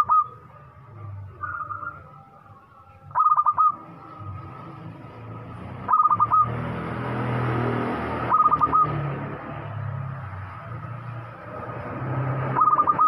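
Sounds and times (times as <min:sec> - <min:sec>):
dove cooing: 0:00.0 - 0:00.4, 0:03.1 - 0:03.8, 0:05.9 - 0:06.5, 0:12.6 - 0:13.0.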